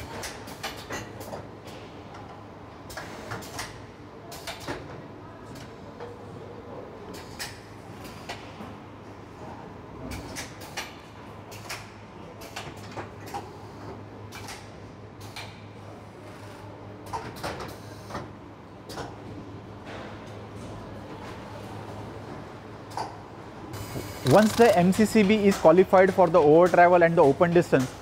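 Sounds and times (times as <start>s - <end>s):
machine fixtures clacking: 24.2s - 28.0s.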